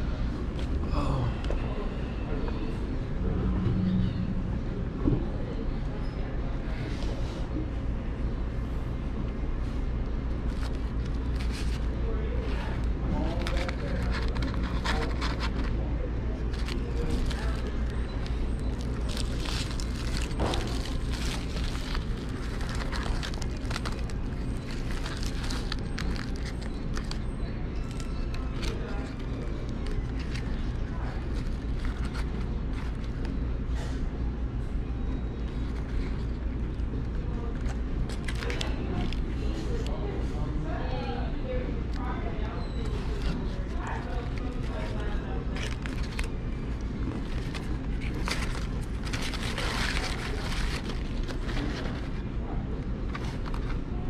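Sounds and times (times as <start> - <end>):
low hum: 0.0 - 6.8
steady low rumble: 0.0 - 40.8
paper wrapper crinkling: 10.4 - 33.4, 37.4 - 39.8, 42.8 - 54.0.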